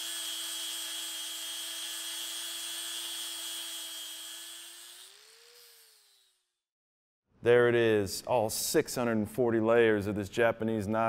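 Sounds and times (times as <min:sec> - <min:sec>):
angle grinder sanding: 0:00.0 - 0:06.6.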